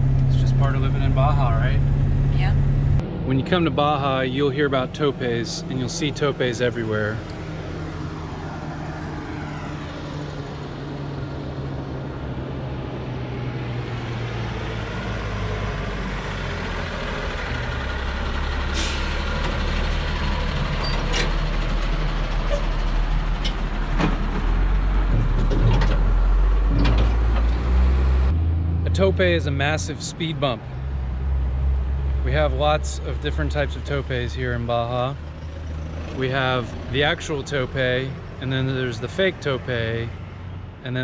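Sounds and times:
diesel truck engine rumble: 0.0s - 41.0s
trucks knocking and rattling over bump: 13.9s - 28.4s, 31.0s - 40.5s.

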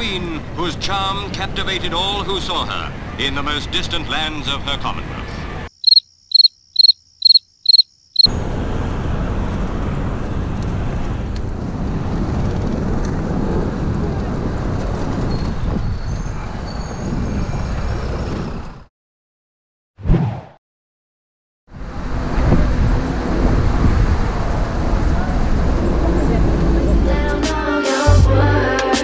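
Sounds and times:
traffic: 0.0s - 18.9s, 21.7s - 27.5s
cricket chirps: 5.7s - 8.3s
bicycle rolling on cobblestones: 9.4s - 15.6s.

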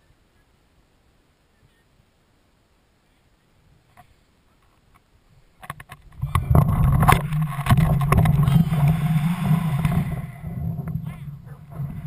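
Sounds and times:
knocks and rattles of swinging rig: 5.6s - 9.0s
wind buffeting microphone: 6.0s - 12.0s.

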